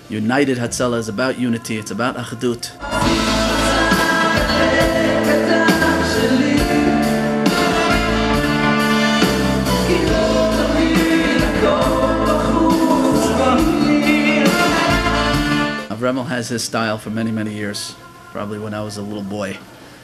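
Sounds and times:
two men singing a duet: 1.7 - 8.1, 9.8 - 15.8
band with bass line: 2.8 - 15.9.

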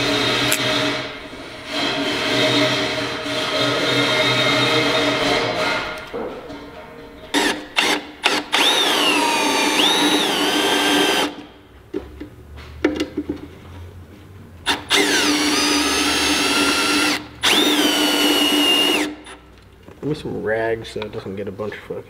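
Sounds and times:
cordless drill whining into metal: 0.0 - 1.0, 7.3 - 11.5, 14.7 - 19.4.

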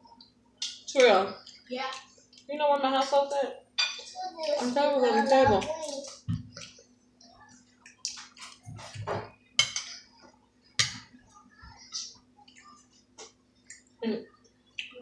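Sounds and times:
cutlery clinking against plates: 3.8 - 4.8, 7.8 - 10.1, 10.8 - 11.1.

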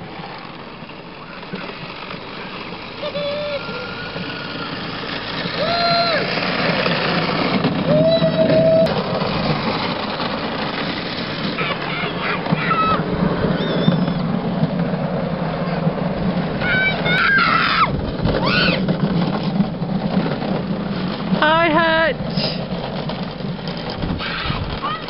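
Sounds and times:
carts rolling on concrete track: 0.0 - 25.0
high gliding squealing calls: 3.0 - 4.5, 13.5 - 14.3.

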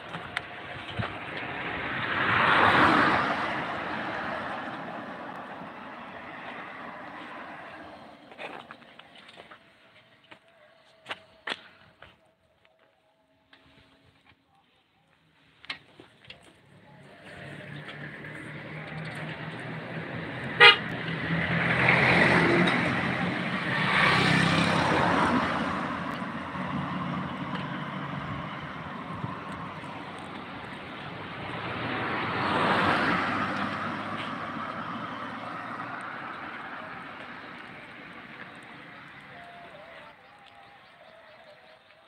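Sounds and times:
cars driving past: 0.0 - 9.6, 16.5 - 41.4
car horn toot: 20.5 - 21.0.

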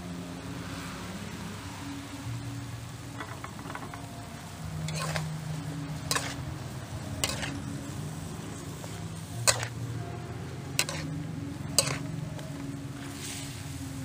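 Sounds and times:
steady low hum: 2.4 - 14.0
metal spatula scraping wok: 4.8 - 10.0, 10.7 - 13.8.

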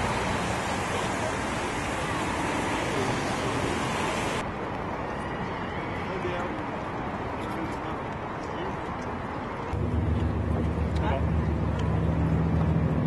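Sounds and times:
rain falling: 0.0 - 4.4.

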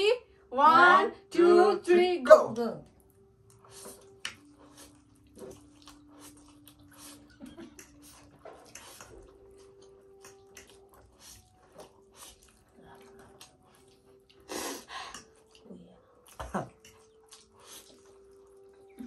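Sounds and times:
people slurping noodles: 3.7 - 19.0.

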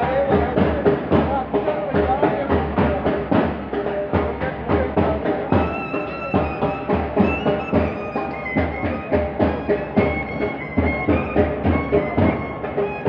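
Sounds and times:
drums beating march rhythm: 0.0 - 13.0
wind instrument melody: 5.3 - 13.0.

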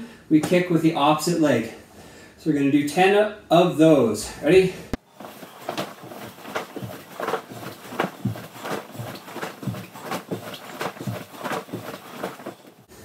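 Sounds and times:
bare feet thumping on wooden floor: 5.0 - 12.8
fabric swishing: 5.0 - 12.9.

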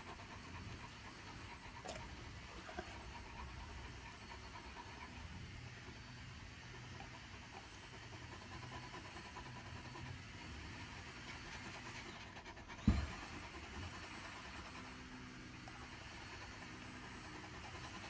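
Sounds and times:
dog panting: 0.0 - 18.0
low thump: 12.8 - 13.2.

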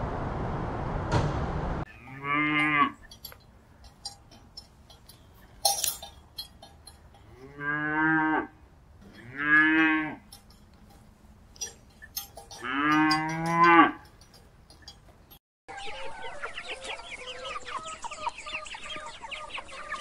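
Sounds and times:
calf mooing: 1.9 - 3.2, 7.2 - 10.5, 12.2 - 14.1.

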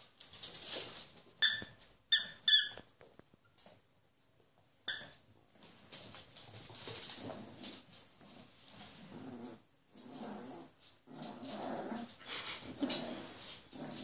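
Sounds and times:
puppies scuffling: 0.0 - 2.1, 2.8 - 14.0
puppies growling and whining: 9.0 - 14.0.

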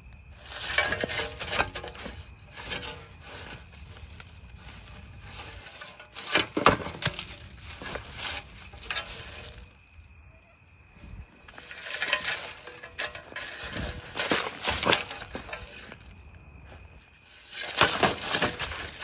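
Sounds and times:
rustling through leaf litter: 1.5 - 9.8.

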